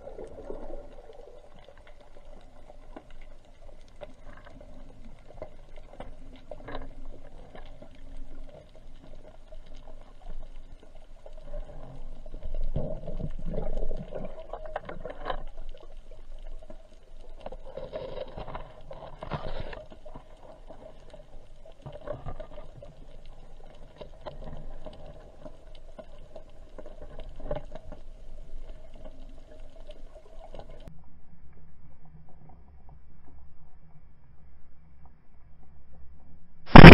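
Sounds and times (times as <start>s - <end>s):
steady hum: 36.7s - 36.9s.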